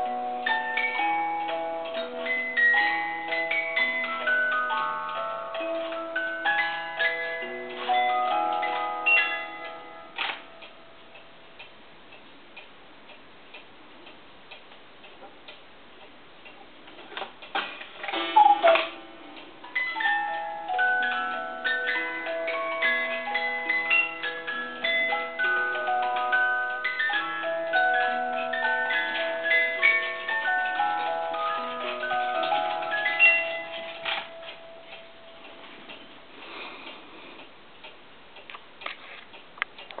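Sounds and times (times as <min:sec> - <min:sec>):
music box note ringing: 0:18.1 - 0:35.4.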